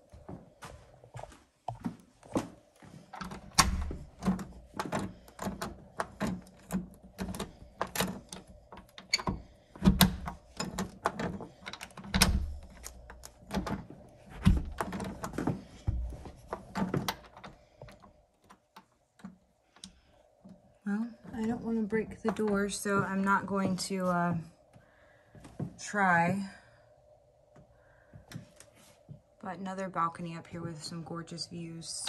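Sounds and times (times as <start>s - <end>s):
door latch and handle rattling: 3.2s - 18.0s.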